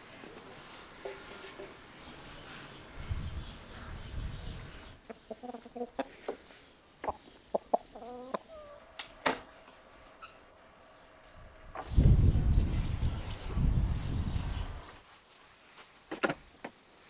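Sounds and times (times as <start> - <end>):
chickens clucking: 4.5 - 10.7.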